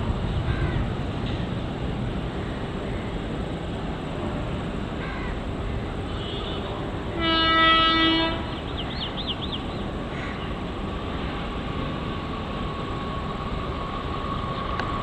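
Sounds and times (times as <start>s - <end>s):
electric locomotive rumbling: 0.0s - 15.0s
train horn blast: 6.1s - 8.7s.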